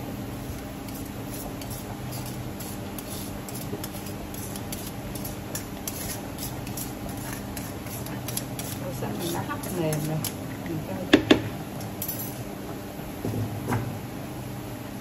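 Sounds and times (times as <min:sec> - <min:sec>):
steady low hum: 0:00.0 - 0:15.0
metal spoon scraping a strainer: 0:00.4 - 0:10.4, 0:12.0 - 0:12.4.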